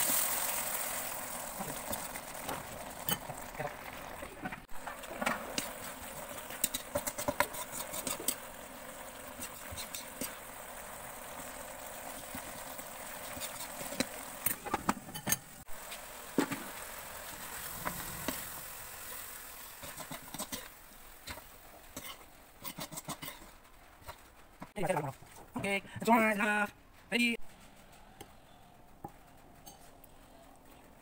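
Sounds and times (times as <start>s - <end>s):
food sizzling in oil: 0.0s - 24.2s
metal spatula scraping pan: 5.1s - 10.7s, 12.0s - 15.5s, 21.3s - 24.2s.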